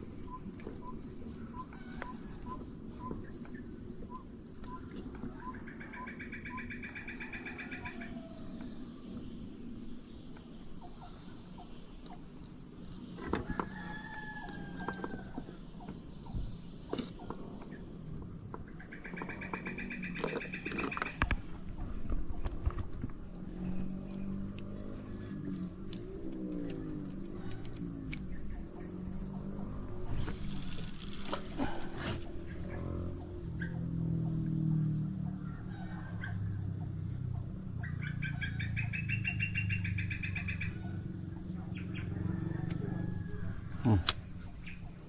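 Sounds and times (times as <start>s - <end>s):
outdoor background: 0.0s - 45.0s
rooster crowing: 1.6s - 2.4s, 7.0s - 8.8s, 13.4s - 15.6s, 26.9s - 30.6s, 34.6s - 37.0s, 40.5s - 44.0s.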